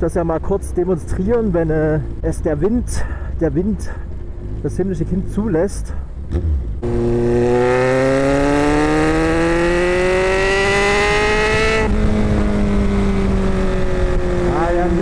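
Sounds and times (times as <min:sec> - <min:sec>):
motorcycle engine accelerating: 0:06.2 - 0:15.0.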